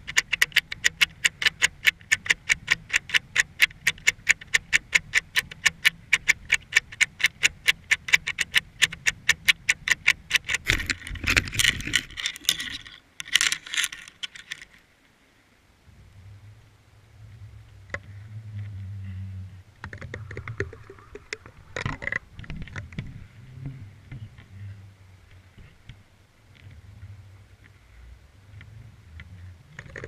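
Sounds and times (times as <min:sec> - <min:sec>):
sharp underwater clicks: 0:00.0 - 0:14.8, 0:19.8 - 0:23.1, 0:29.2 - 0:30.0.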